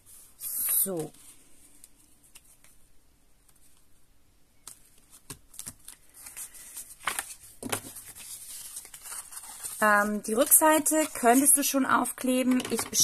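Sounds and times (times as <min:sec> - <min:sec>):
paper rustling: 0:04.6 - 0:13.0.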